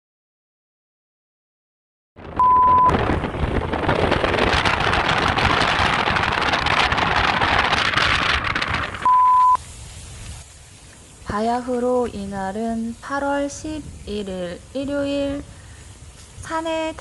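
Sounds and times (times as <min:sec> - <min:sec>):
wind buffeting microphone: 0:02.2 - 0:10.5, 0:13.5 - 0:17.0
short steady beep: 0:02.4 - 0:02.9, 0:09.0 - 0:09.6.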